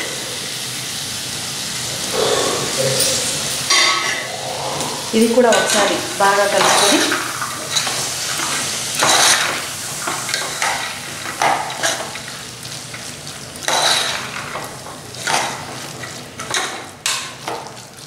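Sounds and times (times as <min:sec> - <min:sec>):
masala sizzling in oil: 0:04.9 - 0:18.0.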